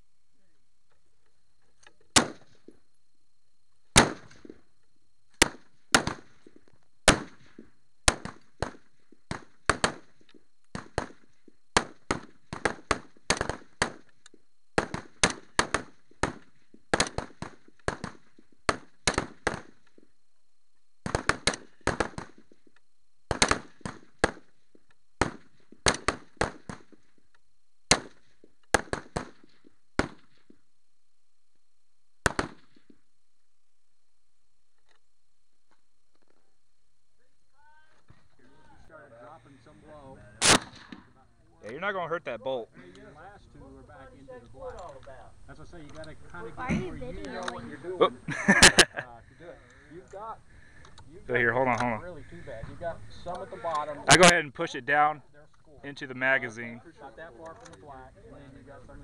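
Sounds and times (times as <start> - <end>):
rifle shots: 2.1 - 2.7, 3.9 - 4.6, 5.4 - 14.1, 14.7 - 19.9, 21.0 - 22.6, 23.3 - 24.6, 25.2 - 27.0, 27.9 - 30.6, 32.2 - 32.9, 40.4 - 41.2.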